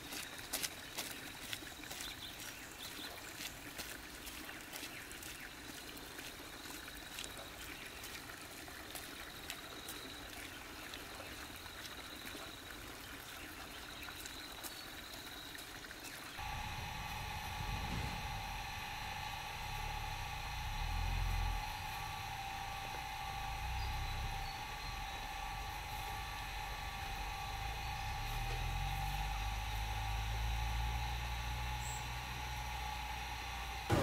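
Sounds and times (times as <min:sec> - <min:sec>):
trickling water: 0:00.0 - 0:33.9
high-pitched whine: 0:16.4 - 0:34.0.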